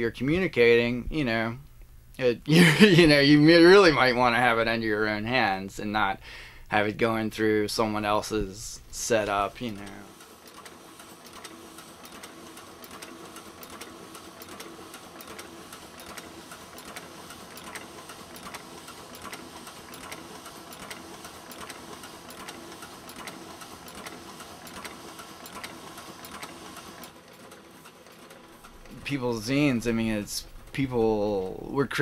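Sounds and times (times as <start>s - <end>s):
steady machine hum: 0.0s - 32.0s
printing press clatter: 9.6s - 31.6s.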